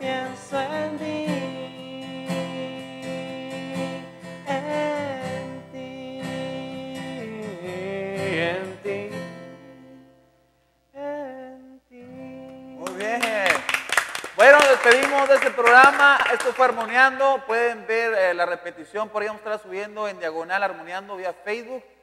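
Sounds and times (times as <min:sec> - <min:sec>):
person singing wordless notes: 0:00.0 - 0:10.2, 0:10.9 - 0:13.4
acoustic guitar strumming: 0:00.0 - 0:10.4.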